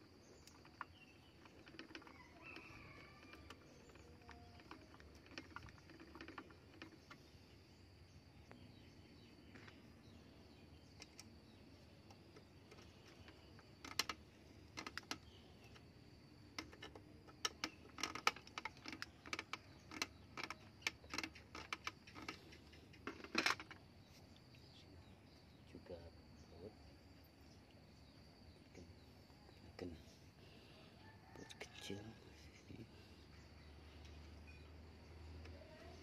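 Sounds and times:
small clicks and scrapes: 0.0s - 7.6s, 10.8s - 24.6s.

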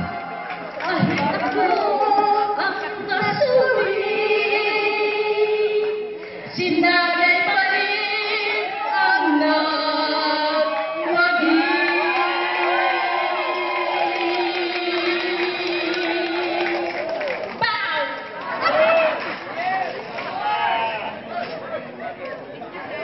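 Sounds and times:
woman singing into a microphone: 0.8s - 16.9s.

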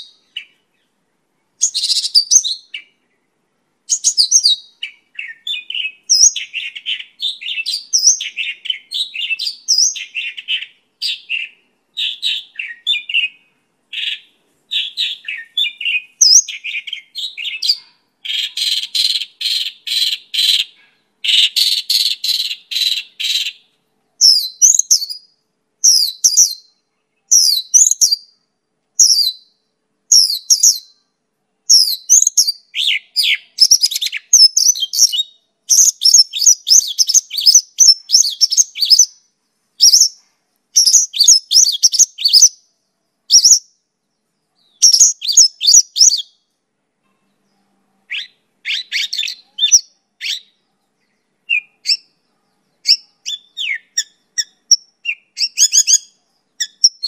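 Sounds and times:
lark singing: 1.6s - 3.1s, 3.9s - 28.4s, 29.0s - 31.0s, 31.7s - 39.2s, 39.8s - 40.2s, 40.8s - 42.6s, 43.3s - 43.7s, 44.6s - 46.4s, 48.1s - 52.2s, 52.8s - 57.0s.

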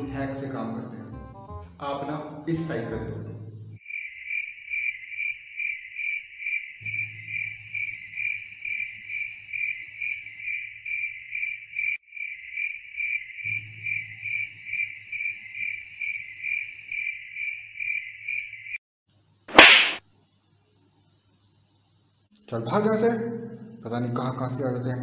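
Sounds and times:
cricket chirping: 3.8s - 18.8s.

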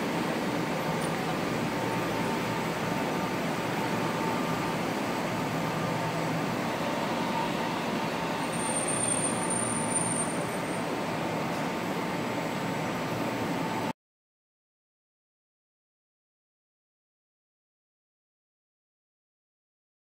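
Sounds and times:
tram hum and rumble: 0.0s - 13.9s.

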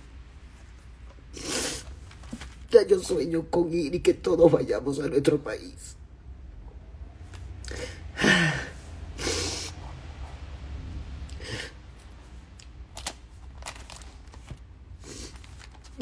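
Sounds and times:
soft clicks and rustles: 0.1s - 2.7s
woman sniffing and breathing: 1.3s - 1.9s, 7.7s - 10.2s, 15.0s - 15.5s
woman sighing: 7.7s - 8.9s.

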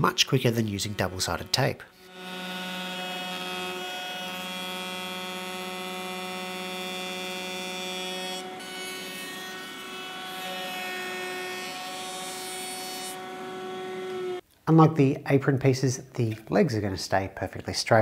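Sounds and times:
router motor whine: 0.8s - 14.4s.

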